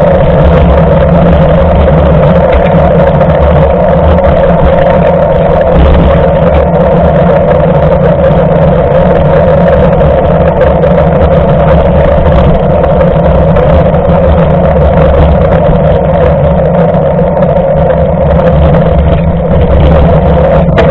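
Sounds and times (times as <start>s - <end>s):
bike tyres on wet road: 0.0s - 20.9s
constant hum: 0.0s - 20.9s
wind rumble: 0.0s - 20.9s.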